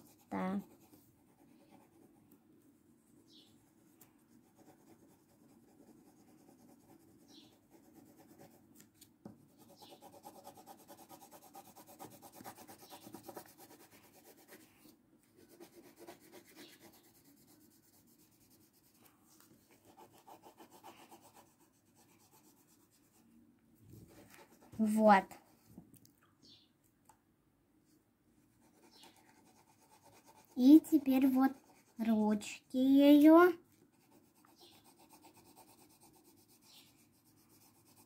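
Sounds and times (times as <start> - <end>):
pencil scratching on paper: 0.0 - 2.2, 4.3 - 8.6, 9.5 - 23.2, 24.0 - 25.6, 28.5 - 32.4, 33.9 - 38.0.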